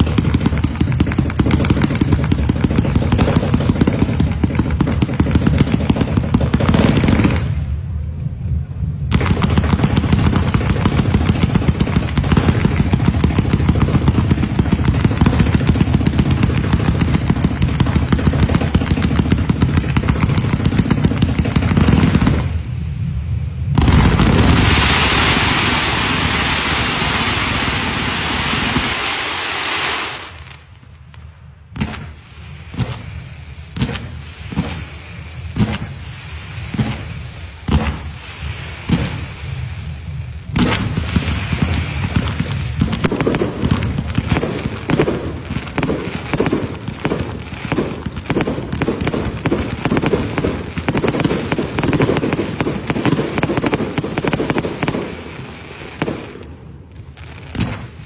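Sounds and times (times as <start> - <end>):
fireworks bangs: 0.0 - 58.0
fireworks crackling and popping: 0.0 - 58.0
fireworks hissing: 9.2 - 30.8, 31.8 - 56.4.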